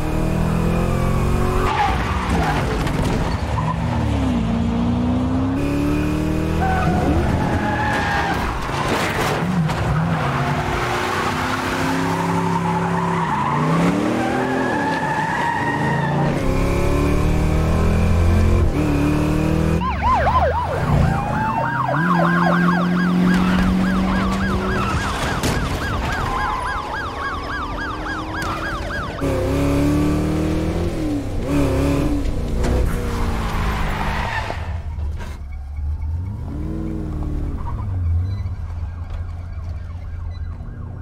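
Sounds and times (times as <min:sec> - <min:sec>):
car engines revving: 0:00.0 - 0:41.0
police sirens wailing: 0:06.4 - 0:31.4, 0:33.2 - 0:41.0.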